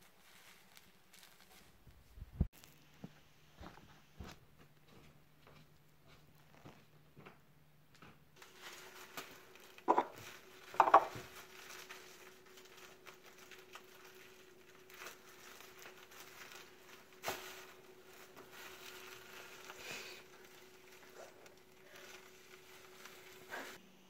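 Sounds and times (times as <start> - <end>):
plastic bag rustling: 0.0 - 3.0, 8.4 - 23.8
knocks on counter: 10.8 - 11.1.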